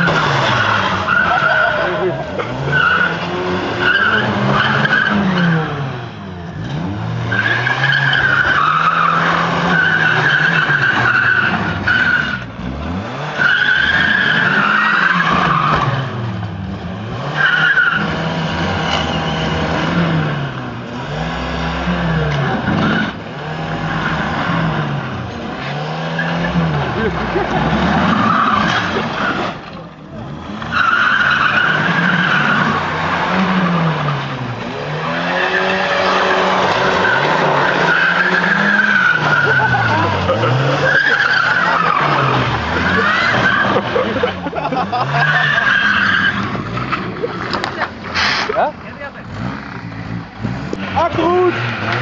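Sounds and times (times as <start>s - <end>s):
tyre squeals: 0.0s - 5.7s, 7.3s - 12.5s, 30.7s - 34.4s, 35.3s - 48.8s
car engines revving: 0.0s - 52.0s.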